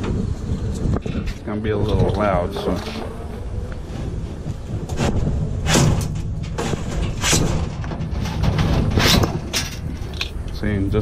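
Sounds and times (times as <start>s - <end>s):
metal drawer rail banging and clanking: 4.8s - 10.2s.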